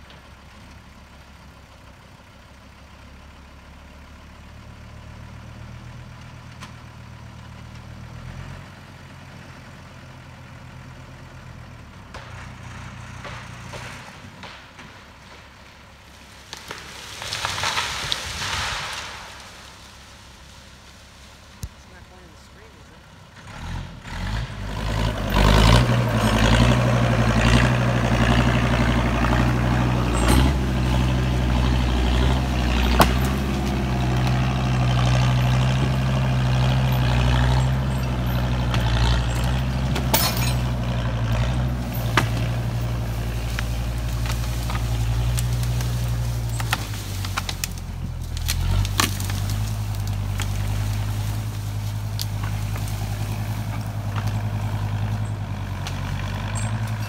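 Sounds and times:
skidder engine droning: 0.0 - 57.0.

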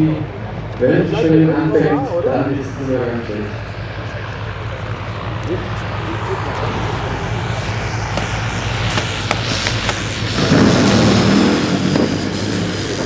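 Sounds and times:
steady low hum: 0.0 - 13.0
model plane motor and propeller: 2.8 - 13.0.

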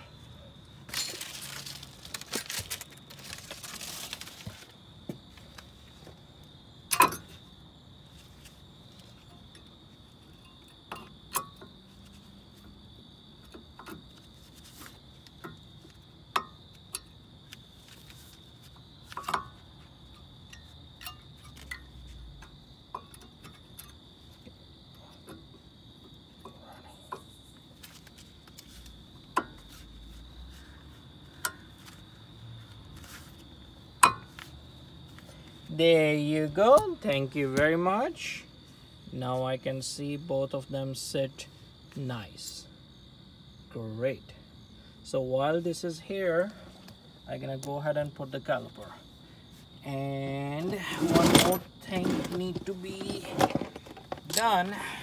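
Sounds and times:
scraping rustle: 0.9 - 4.8, 14.1 - 15.4, 17.6 - 19.6, 27.3 - 30.8, 31.7 - 33.6, 50.6 - 54.5.

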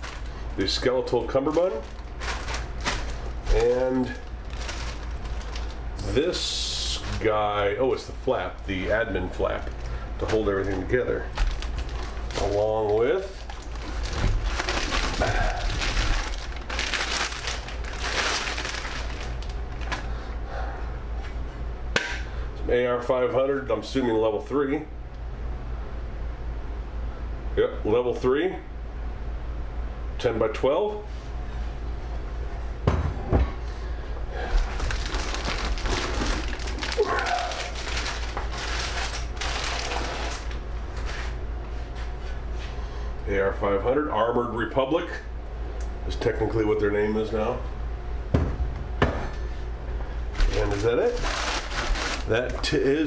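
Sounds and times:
plastic bag crinkling: 0.0 - 7.3, 8.0 - 20.2, 34.4 - 41.4, 50.3 - 53.0
steady low hum: 0.0 - 53.0
thumps on a table: 32.8 - 33.6.

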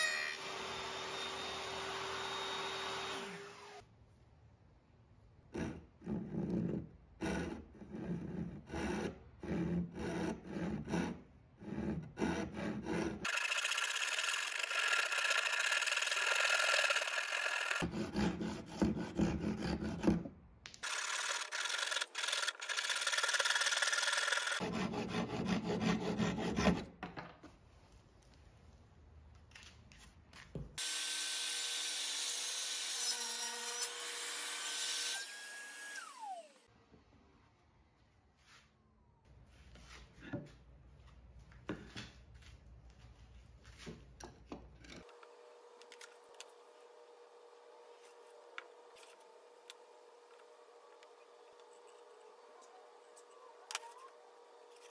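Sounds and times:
handsaw cutting wood: 7.2 - 20.2, 20.8 - 26.9
table saw motor whining: 30.8 - 36.6.

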